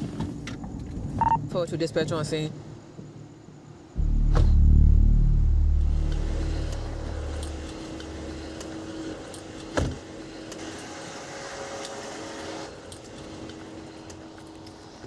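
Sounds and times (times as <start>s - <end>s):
faint steady hum: 2.6s - 10.6s
sharp thump: 4.0s - 8.8s
car engine low rumble: 4.0s - 10.4s.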